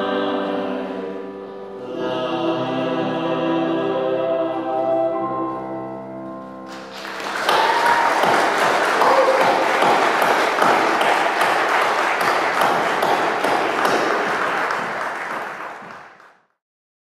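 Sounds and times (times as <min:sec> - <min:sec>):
crowd applauding: 0:06.7 - 0:16.4.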